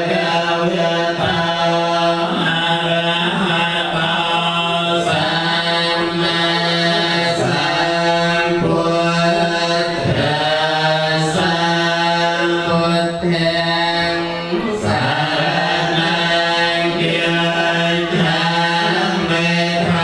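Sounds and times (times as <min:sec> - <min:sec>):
voices chanting in unison: 0:00.0 - 0:20.0.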